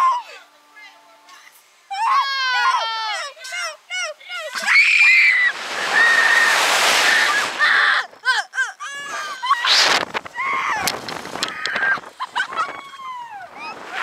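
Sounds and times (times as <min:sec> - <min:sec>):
girls screaming: 0:04.5 - 0:10.9
wind rushing over microphone: 0:05.0 - 0:08.2, 0:09.6 - 0:14.0.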